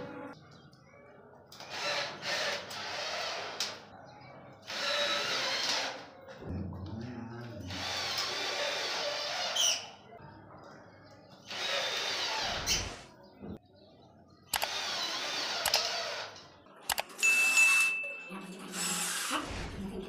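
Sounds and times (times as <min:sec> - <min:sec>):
cordless drill driving screws: 0:01.6 - 0:03.8, 0:11.5 - 0:12.9, 0:14.6 - 0:16.3.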